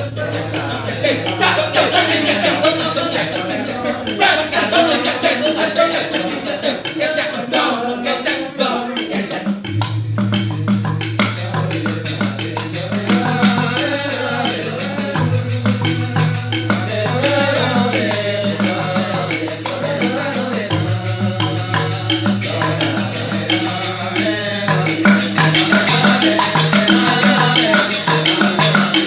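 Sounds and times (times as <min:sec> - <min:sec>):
fast rattling percussion: 0:00.0 - 0:29.0
group of men singing: 0:00.0 - 0:29.0
low droning bass tone: 0:09.7 - 0:11.4.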